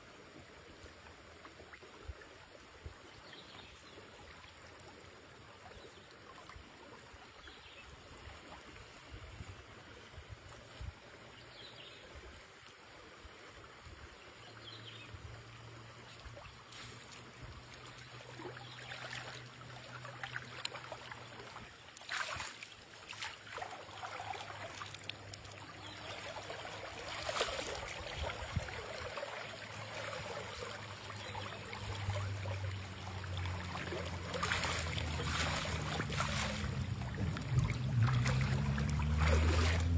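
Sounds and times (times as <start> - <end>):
river water over stones: 0.0 - 39.9
feet splashing in water: 15.6 - 39.9
low hum: 31.9 - 39.9.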